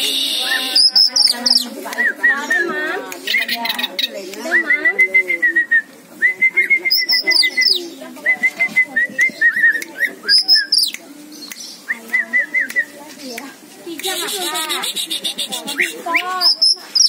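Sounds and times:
bird singing quick repeated notes: 0:00.0 - 0:04.6, 0:06.6 - 0:07.9, 0:09.4 - 0:13.4, 0:14.0 - 0:17.0.

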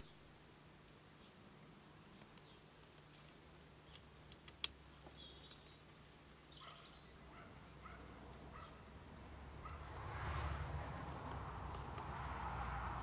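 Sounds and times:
woodpecker pecking wood: 0:10.6 - 0:13.0.

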